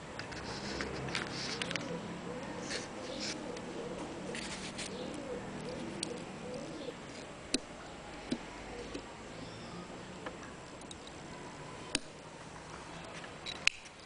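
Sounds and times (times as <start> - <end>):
dove cooing: 0.6 - 10.0.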